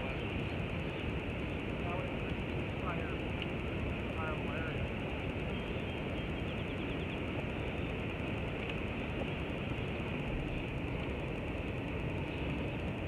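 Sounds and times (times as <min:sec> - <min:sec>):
faint bird chirps: 0:05.2 - 0:08.0.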